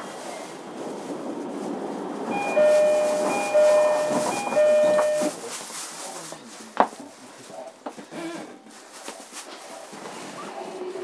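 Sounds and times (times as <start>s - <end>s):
electric train hum: 0.9s - 5.4s
two-note door chime: 2.3s - 5.4s.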